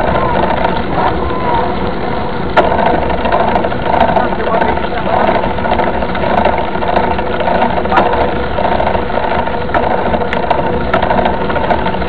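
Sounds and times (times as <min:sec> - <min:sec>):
bike tyres rumbling on dirt: 0:00.0 - 0:12.0
wind on camera: 0:00.0 - 0:12.0
bike rattling clicks: 0:02.4 - 0:12.0.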